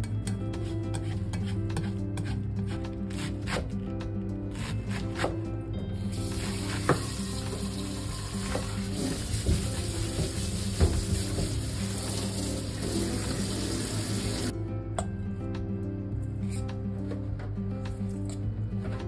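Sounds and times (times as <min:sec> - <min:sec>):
background music: 0:00.0 - 0:19.0.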